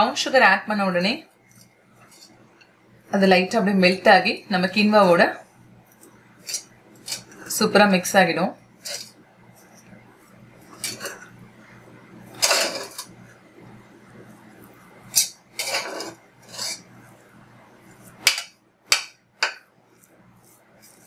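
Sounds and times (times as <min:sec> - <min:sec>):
metal spoon scraping a pot: 0:01.5 - 0:02.3, 0:05.9 - 0:07.5, 0:08.8 - 0:09.9, 0:10.6 - 0:11.3, 0:12.3 - 0:13.2, 0:15.1 - 0:16.9.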